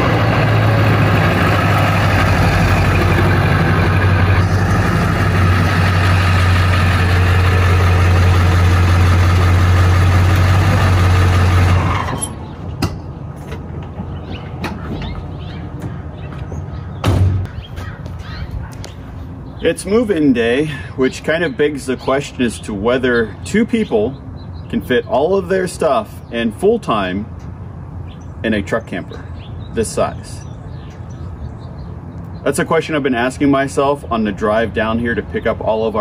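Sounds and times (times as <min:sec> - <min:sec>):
diesel truck engine running: 0:00.0 - 0:36.0
sharp knocks: 0:15.8 - 0:17.9.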